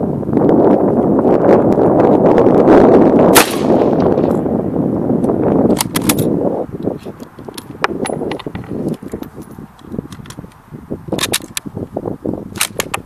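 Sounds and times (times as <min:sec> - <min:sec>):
wind on microphone: 0:00.0 - 0:13.0
rifle shot: 0:03.3 - 0:04.3
rifle bolt clicks: 0:05.7 - 0:06.3, 0:11.2 - 0:11.6.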